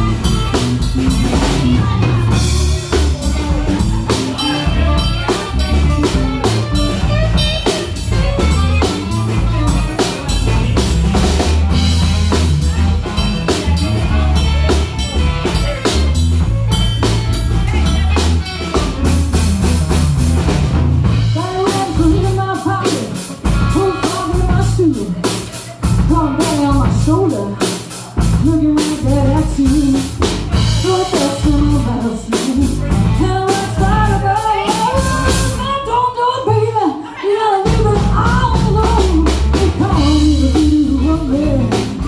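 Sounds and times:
electric bass: 0.0s - 36.8s, 37.7s - 42.0s
drum kit beat: 0.0s - 37.0s, 37.6s - 42.0s
electric guitar: 0.0s - 42.0s
woman singing: 21.3s - 42.0s.

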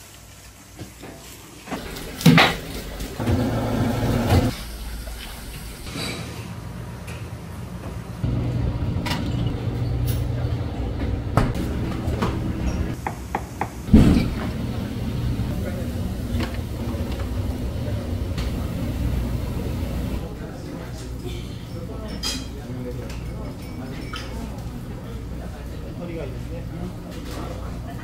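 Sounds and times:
kitchen clatter: 0.8s - 6.5s, 21.8s - 24.8s
steady low hum: 13.9s - 21.4s.

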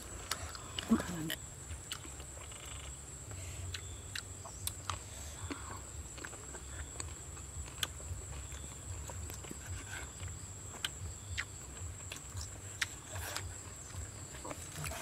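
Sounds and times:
cleaver cutting food: 6.1s - 15.0s.

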